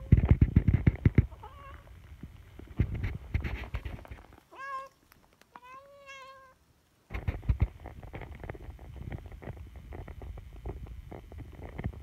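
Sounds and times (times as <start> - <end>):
crackling rustling and thumping: 0.0 - 5.9, 6.8 - 12.0
meow-like animal call: 4.5 - 4.9, 5.6 - 6.6.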